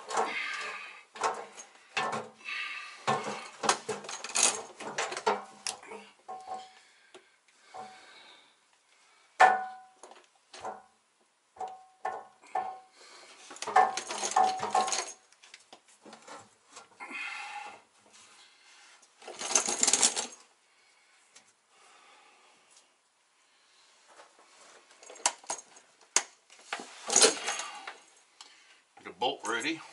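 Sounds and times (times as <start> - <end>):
metal clanking and knocking: 13.6 - 15.2
metal scraping rattle: 13.6 - 15.2.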